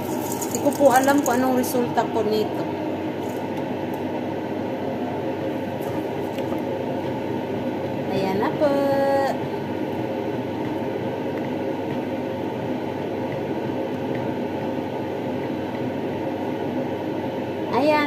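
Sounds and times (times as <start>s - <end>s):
spoon stirring thick rice: 0.0s - 1.4s
rushing kitchen noise: 0.0s - 2.2s.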